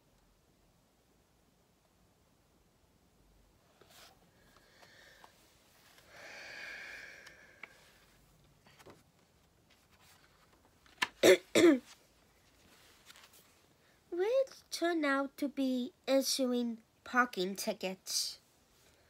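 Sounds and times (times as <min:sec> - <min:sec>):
faint breathy sound: 0:03.6 - 0:08.8
woman coughing: 0:11.2 - 0:11.8.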